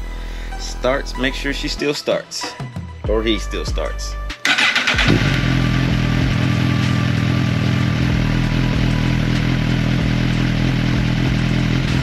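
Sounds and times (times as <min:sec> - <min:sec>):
motorcycle engine idling: 0:04.6 - 0:12.0.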